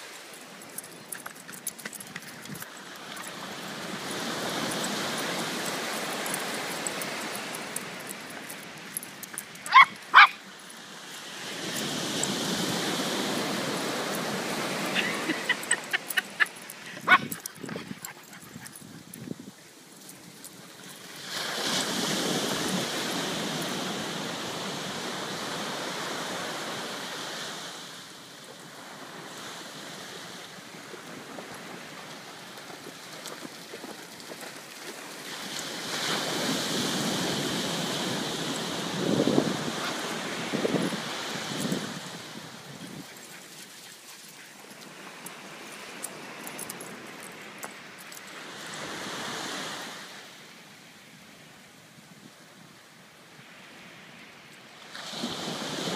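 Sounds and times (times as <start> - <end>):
dog barking: 9.7 - 10.4, 17.0 - 17.4
surf breaking on beach: 10.8 - 17.1, 21.0 - 28.1, 34.8 - 42.9, 54.9 - 55.9.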